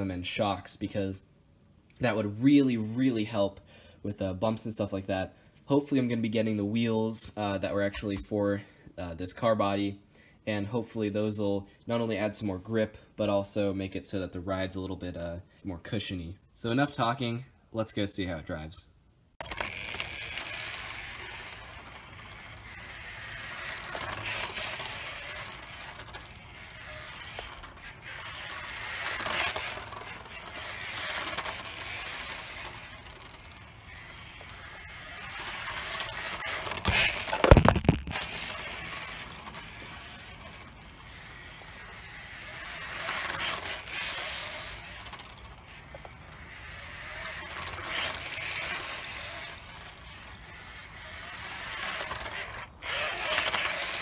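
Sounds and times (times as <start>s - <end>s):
electric toy car motor whining: 19.4s - 54.0s.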